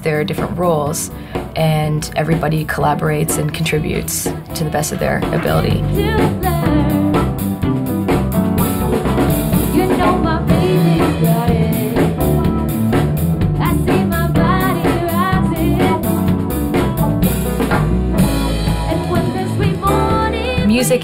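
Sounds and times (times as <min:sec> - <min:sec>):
drum kit bass and piano: 0:00.0 - 0:21.0
woman singing: 0:00.1 - 0:07.4, 0:09.6 - 0:16.2, 0:18.6 - 0:21.0.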